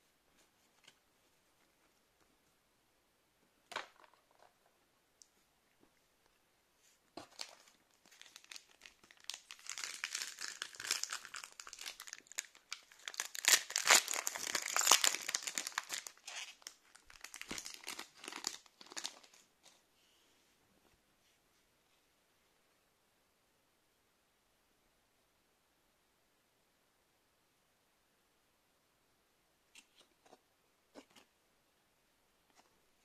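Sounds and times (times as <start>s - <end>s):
foil wrappers tearing and crinkling: 8.1s - 19.2s.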